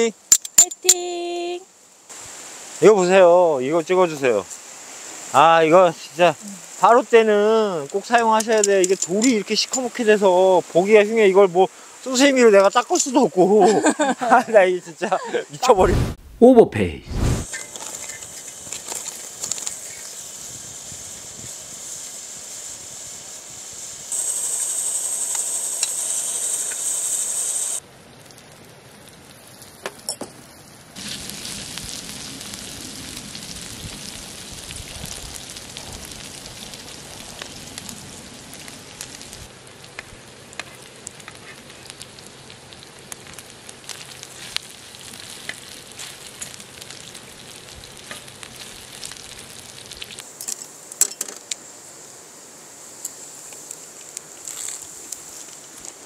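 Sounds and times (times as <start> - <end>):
meat sizzling on a griddle: 1.8 - 15.4, 17.4 - 56.0
pops and crackles: 17.1 - 20.2, 31.0 - 51.6, 53.0 - 56.0.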